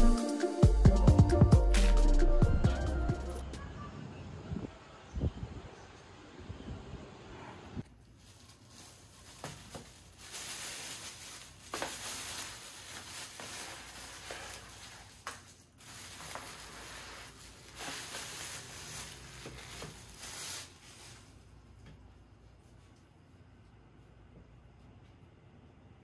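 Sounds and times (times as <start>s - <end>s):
crinkling and rustling: 7.8s - 23.1s.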